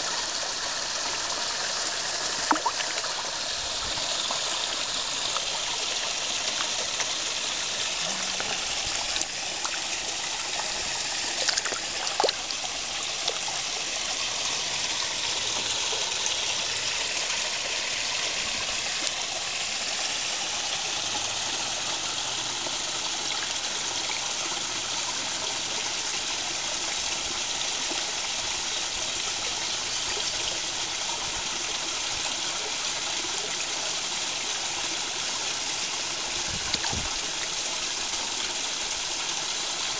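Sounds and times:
trickling pond water: 0.0s - 39.9s
fish splashing at surface: 2.4s - 3.2s, 8.2s - 13.5s.

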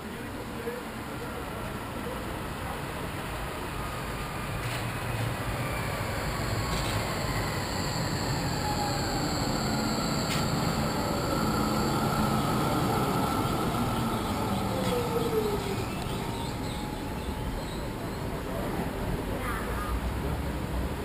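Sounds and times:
tram running by: 0.0s - 21.0s
whining tones falling in pitch: 5.3s - 18.6s.

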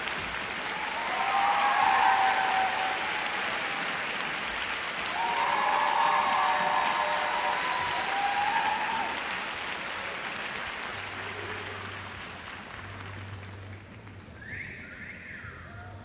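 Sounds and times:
arena audience applauding: 0.0s - 15.4s.

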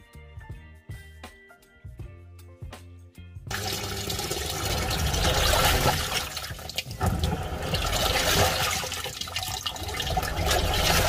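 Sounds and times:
washing machine water churning: 3.5s - 11.0s.

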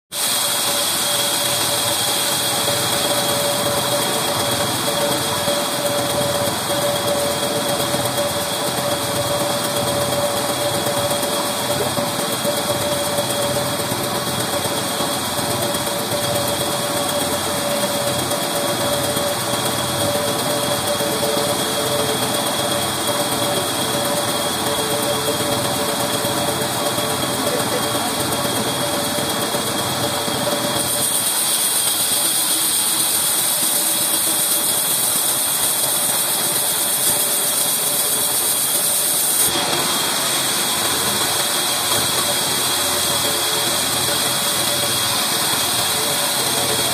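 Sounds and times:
band saw whining: 0.1s - 46.9s.

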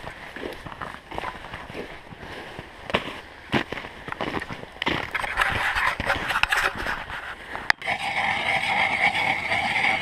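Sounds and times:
crunching in snow: 0.0s - 9.6s
ice auger grinding into ice: 5.1s - 10.0s.

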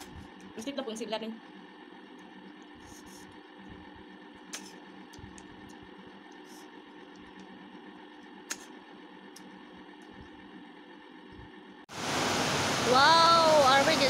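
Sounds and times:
small eating clicks: 0.0s - 10.6s.

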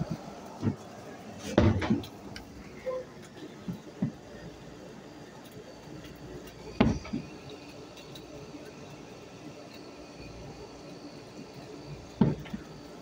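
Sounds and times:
low background noise: 0.0s - 13.0s
dull thumps: 12.2s - 12.6s.

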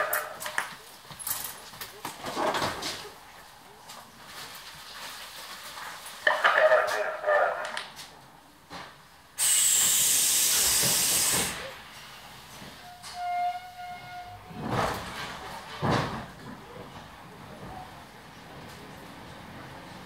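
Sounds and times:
compressed air hiss: 9.4s - 11.9s.

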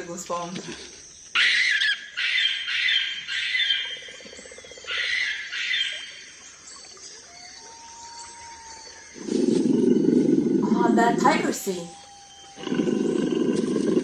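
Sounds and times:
birds chirping and calling: 0.0s - 14.0s
tiger roar: 8.1s - 14.0s.

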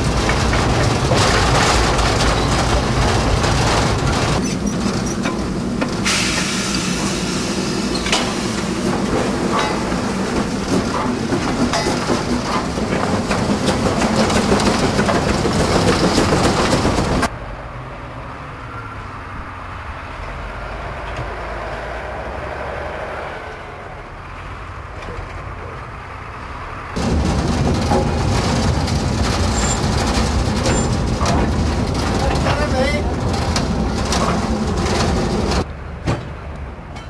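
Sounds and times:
train wheels clattering on track: 0.0s - 17.3s, 26.9s - 37.0s
distant train passing: 0.0s - 25.0s, 25.8s - 37.0s.

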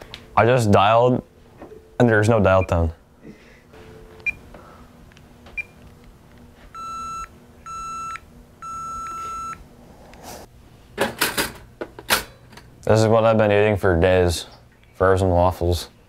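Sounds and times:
telephone electronic beeps: 6.8s - 9.6s.

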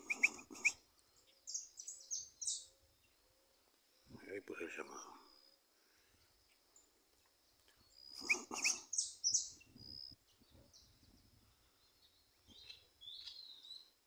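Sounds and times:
finches chirping: 1.4s - 3.2s, 7.8s - 10.2s.

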